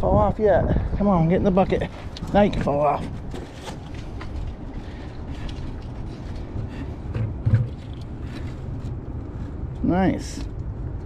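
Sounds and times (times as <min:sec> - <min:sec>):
low steady rumble: 0:00.0 - 0:11.0
dull thump: 0:06.6 - 0:07.8.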